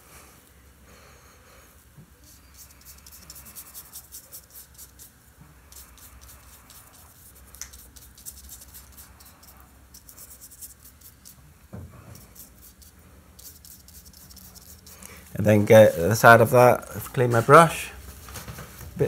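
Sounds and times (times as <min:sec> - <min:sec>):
paintbrush scratching: 0:02.2 - 0:11.4, 0:12.1 - 0:17.8.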